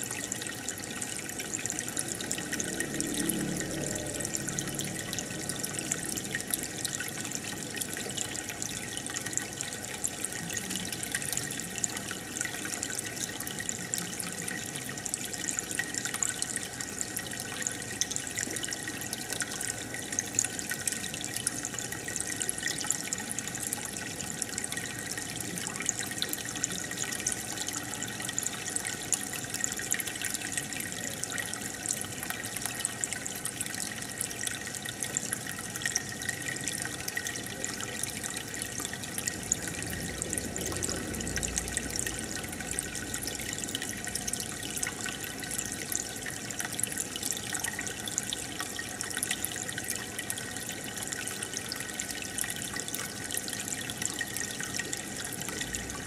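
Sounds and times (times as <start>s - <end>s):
aquarium air bubbles: 0.0s - 56.0s.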